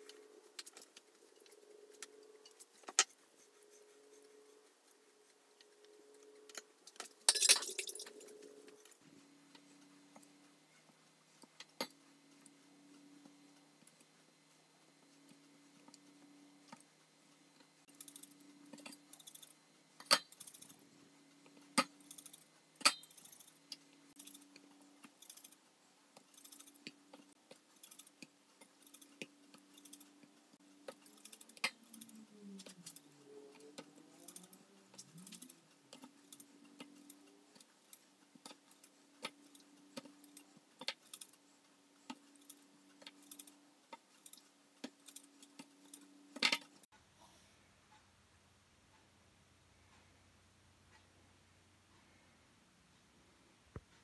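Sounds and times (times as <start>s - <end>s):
plates clicking and tapping: 6.5s - 8.4s.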